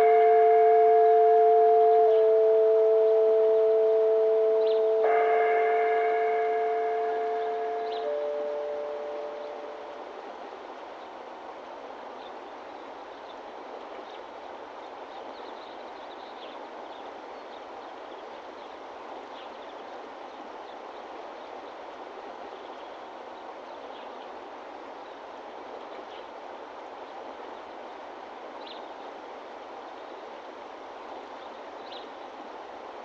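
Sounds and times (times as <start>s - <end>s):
faint bird chirps: 0.0s - 10.0s.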